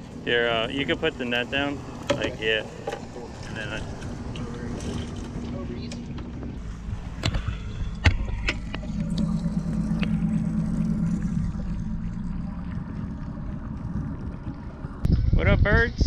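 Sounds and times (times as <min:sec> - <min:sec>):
water pump humming: 0:06.6 - 0:15.1.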